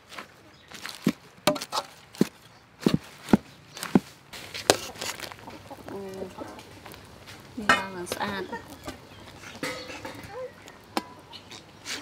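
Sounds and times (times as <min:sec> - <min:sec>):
metal ladle clanking in a wok: 0:09.6 - 0:10.2.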